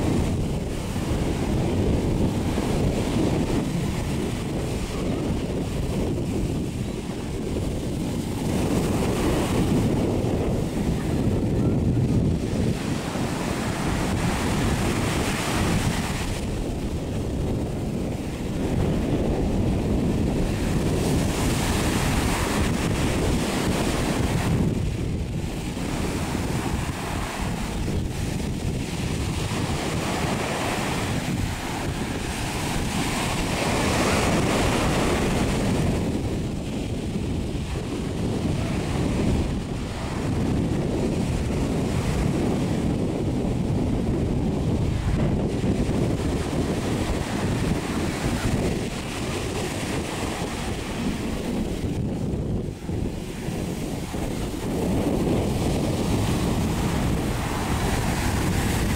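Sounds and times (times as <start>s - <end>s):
ocean surf breaking: 0.0s - 58.9s
wind rumble on microphone: 0.0s - 58.9s.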